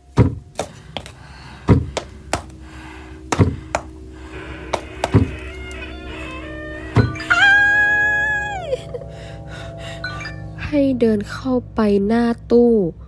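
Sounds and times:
low eerie music drone: 0.0 - 13.0
heavy footsteps thudding: 0.2 - 4.0, 4.7 - 5.4.

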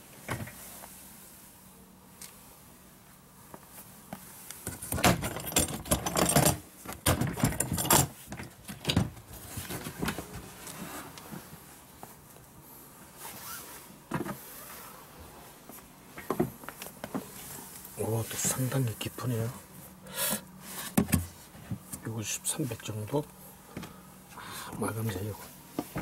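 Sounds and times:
plastic tool box clattering: 4.7 - 10.3.

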